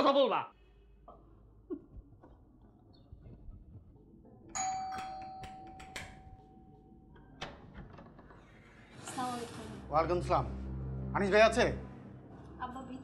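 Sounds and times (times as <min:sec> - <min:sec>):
doorbell ringing: 0:04.5 - 0:07.2.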